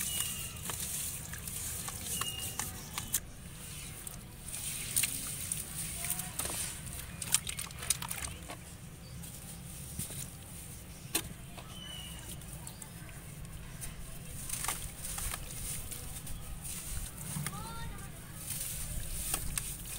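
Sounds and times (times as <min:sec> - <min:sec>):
water splashing and dripping: 0:04.0 - 0:08.6.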